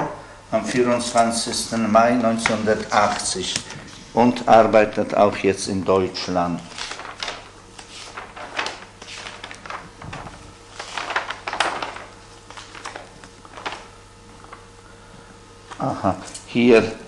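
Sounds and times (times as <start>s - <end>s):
paper pages rustling: 0.9s - 3.8s, 6.6s - 14.7s.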